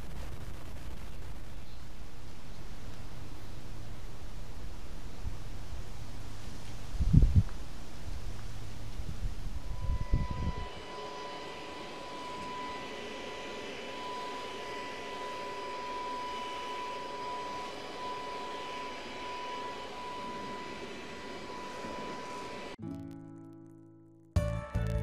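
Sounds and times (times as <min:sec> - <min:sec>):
leaf blower whine and air rush: 0:02.8 - 0:22.8.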